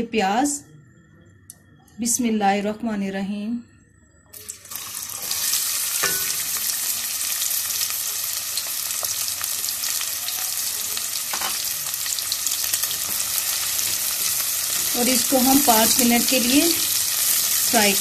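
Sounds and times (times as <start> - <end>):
onions sizzling in hot fat: 4.4 - 18.0.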